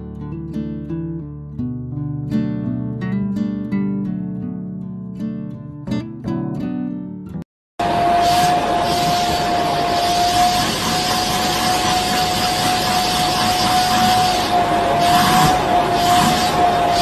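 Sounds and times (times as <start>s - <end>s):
vacuum cleaner running: 7.8s - 17.0s.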